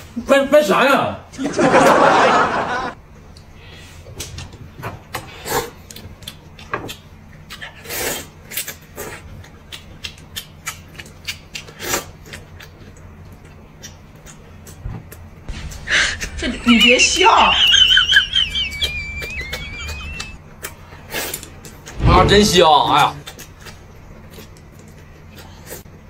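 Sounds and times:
food chewing: 5.7 - 15.3, 23.2 - 26.0
wet mouth clicks and smacks: 9.4 - 14.8.

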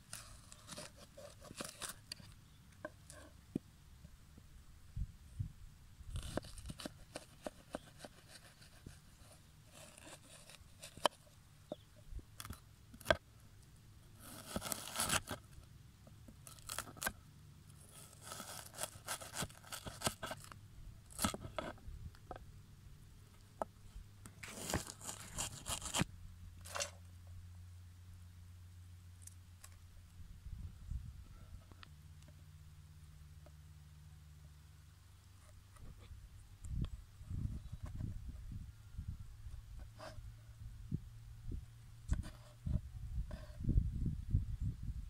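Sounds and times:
knife crunching through onion: 14.2 - 15.4, 16.5 - 17.1, 17.9 - 20.5, 24.4 - 26.8.

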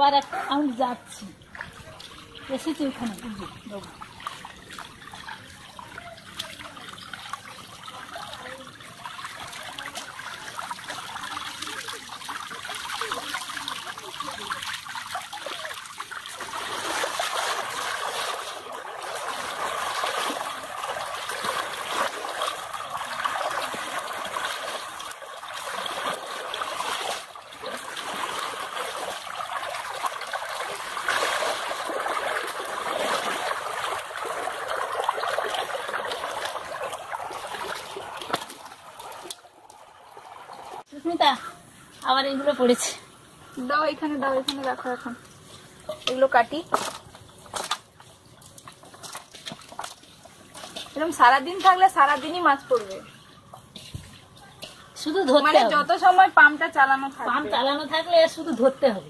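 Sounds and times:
water trickling: 0.0 - 59.0.

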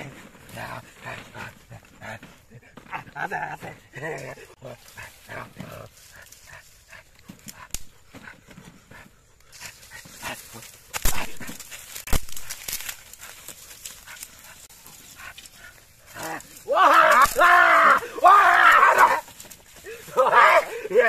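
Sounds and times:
twigs and grass rustling: 0.0 - 21.0
sharp twig cracks: 10.6 - 14.3.

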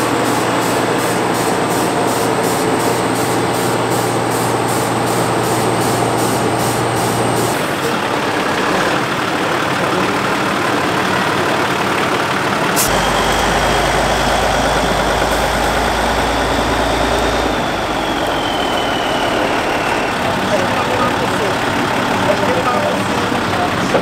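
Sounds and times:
diesel truck engine running: 0.0 - 24.0
faint high whine: 12.9 - 21.5.

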